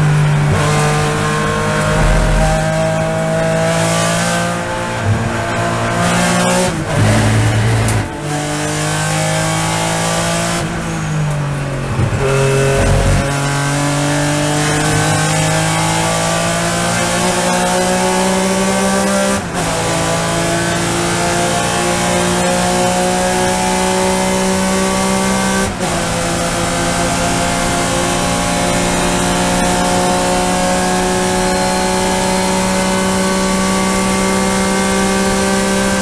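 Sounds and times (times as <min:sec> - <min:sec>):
wind and road noise: 0:00.0 - 0:19.0
racing engine accelerating: 0:00.1 - 0:10.7, 0:12.2 - 0:36.0.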